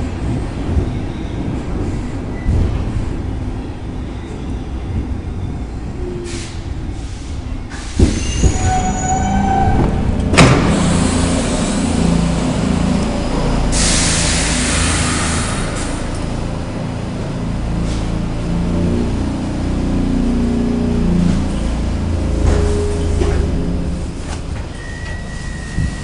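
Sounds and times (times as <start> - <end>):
metro train rumbling: 0.0 - 26.0
brief squeal: 7.7 - 9.9, 24.7 - 26.0
hiss: 13.7 - 16.1.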